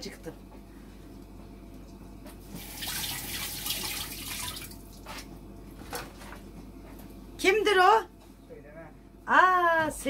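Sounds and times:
water running from a tap: 0:02.6 - 0:05.0.

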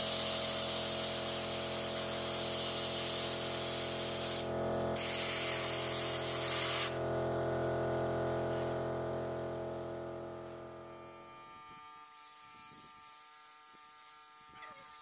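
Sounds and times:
spray gun hissing: 0:00.0 - 0:07.0, 0:08.4 - 0:10.1, 0:12.0 - 0:15.0
motor hum: 0:04.4 - 0:12.9.

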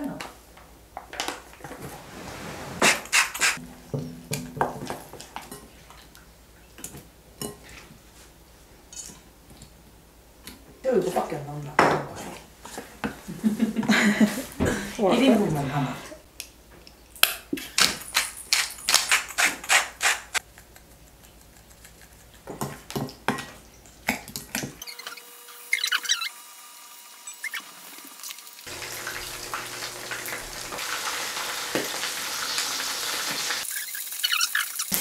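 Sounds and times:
shrimp frying in hot oil: 0:27.4 - 0:35.0.

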